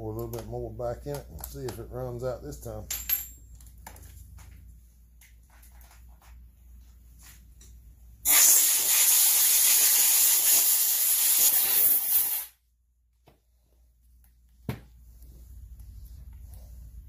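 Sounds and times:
loud spraying hiss: 8.3 - 12.5.

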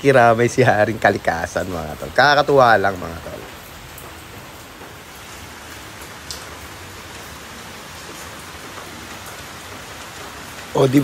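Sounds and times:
heavy rain on leaves and concrete: 0.0 - 11.0.

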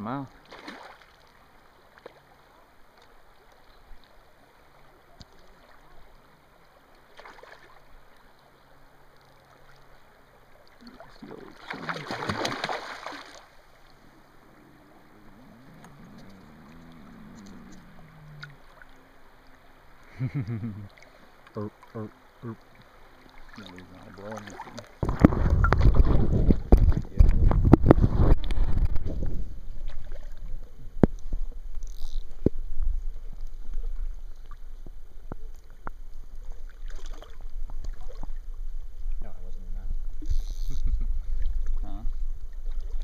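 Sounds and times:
water lapping at shore: 0.0 - 43.0
fish splashing at surface: 0.5 - 1.1, 10.9 - 13.5.

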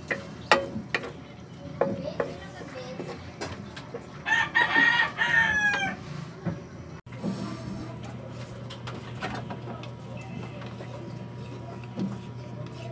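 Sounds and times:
rooster crowing: 4.2 - 6.1.

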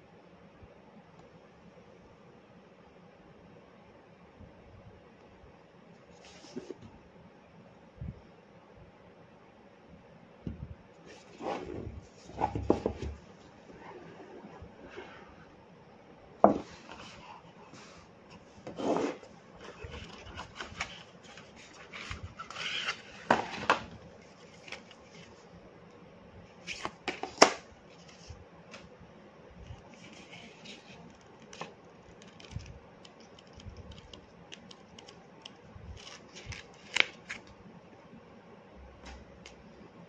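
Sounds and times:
paper and card rustling: 19.0 - 25.5, 29.7 - 37.5.

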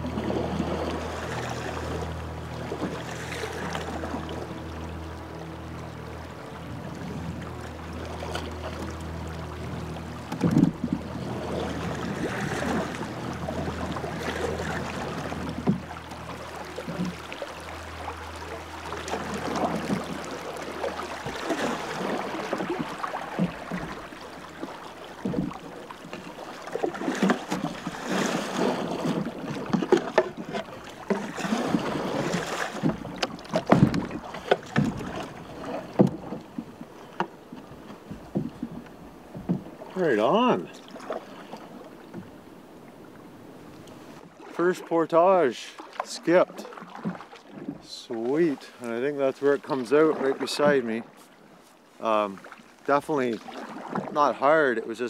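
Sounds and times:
paddle strokes splashing: 0.0 - 55.0
water rushing along hull: 0.0 - 55.0.

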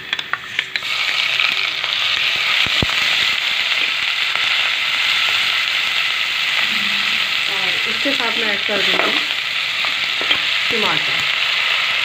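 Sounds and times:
paste sizzling in hot oil: 0.4 - 12.0.

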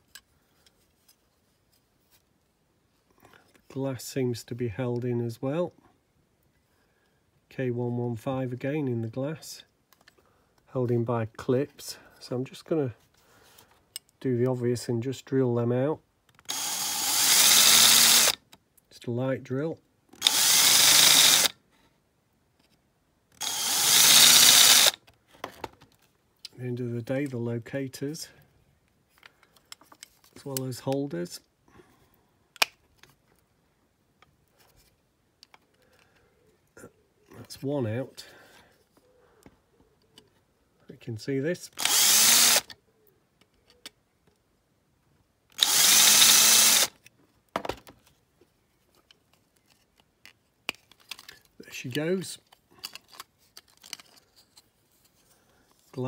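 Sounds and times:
power drill running: 16.5 - 18.4, 20.2 - 21.5, 23.4 - 25.0, 41.8 - 42.7, 45.6 - 46.9.

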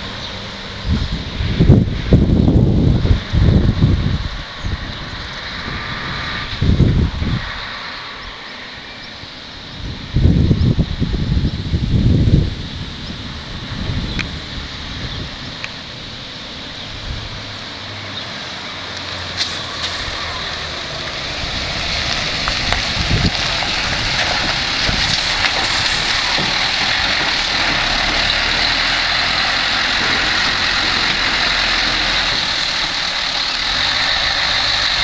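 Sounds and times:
truck diesel engine running: 9.2 - 35.0.

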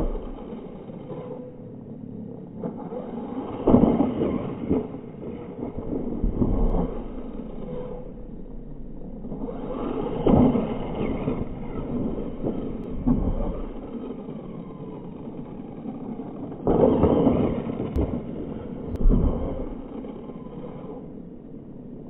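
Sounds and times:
radio-controlled bike motor whining: 0.0 - 1.7, 5.8 - 21.4.

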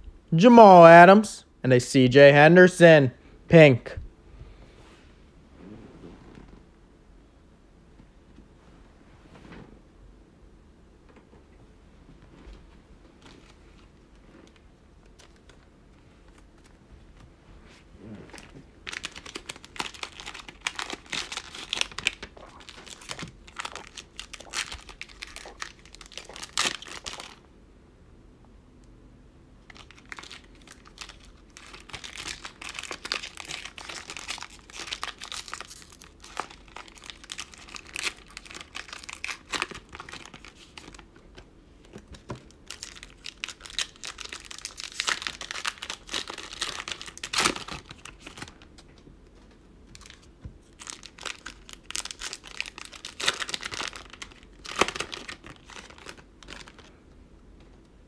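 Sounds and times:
plastic wrappers crinkling: 18.3 - 27.4, 29.6 - 41.1, 41.8 - 48.9, 49.9 - 56.9.

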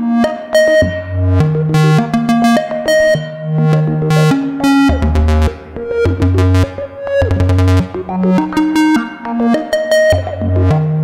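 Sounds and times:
synthesizer bass line: 0.0 - 11.0.

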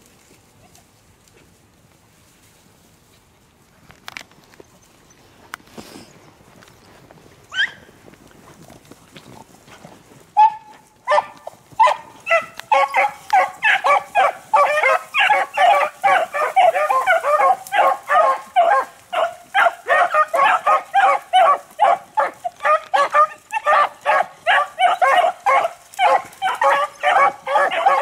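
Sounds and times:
hounds baying: 7.5 - 7.9, 10.4 - 28.0.

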